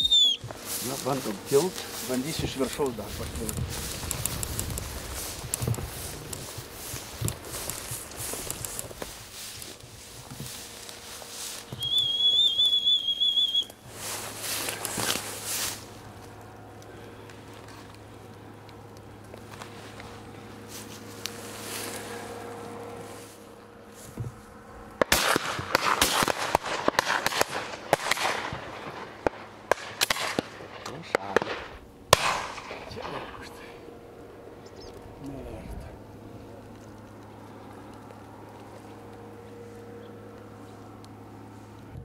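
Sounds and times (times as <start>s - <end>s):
pea whistle trilling: 0.0s - 0.4s, 11.7s - 13.8s
footsteps rustling through grass: 0.0s - 25.8s, 33.8s - 41.9s
shotgun shots: 25.0s - 33.3s.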